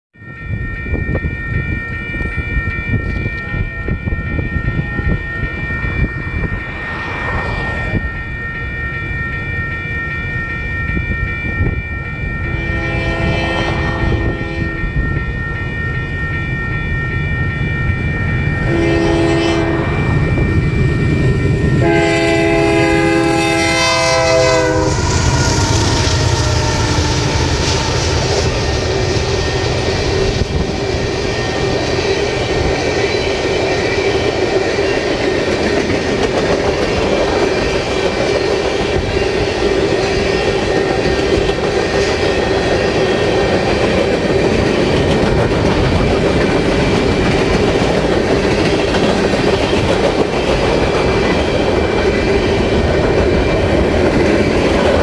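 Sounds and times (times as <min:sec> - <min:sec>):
train wheel noise: 0:00.3 - 0:55.0
train horn blasts: 0:12.4 - 0:15.0, 0:18.6 - 0:20.7, 0:21.6 - 0:29.5
locomotive engine rumble: 0:19.6 - 0:33.5.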